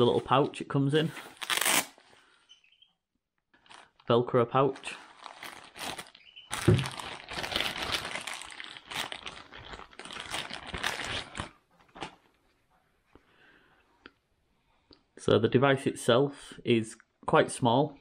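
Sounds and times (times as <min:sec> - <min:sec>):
velcro flap ripped open: 0:01.4 - 0:02.0
plastic bag crinkling: 0:03.6 - 0:12.2.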